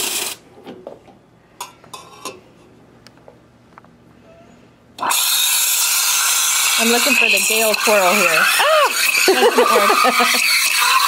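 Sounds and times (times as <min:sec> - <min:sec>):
steam wand hissing into milk: 0:05.0 - 0:11.0.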